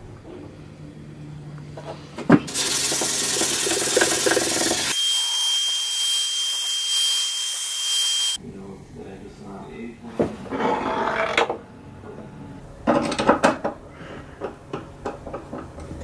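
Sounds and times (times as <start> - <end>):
paint sprayer hissing: 2.5 - 5.0.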